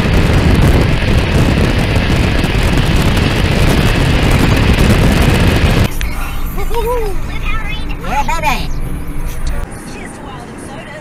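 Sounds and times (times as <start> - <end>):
wind rushing over camera: 0.0 - 6.8
tyre and road rumble: 0.0 - 11.0.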